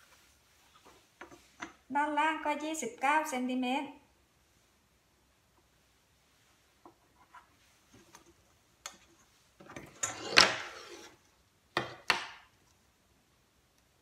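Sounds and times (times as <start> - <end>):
yardstick scraping slide: 9.8 - 11.2
yardstick knocking on table: 11.8 - 12.4.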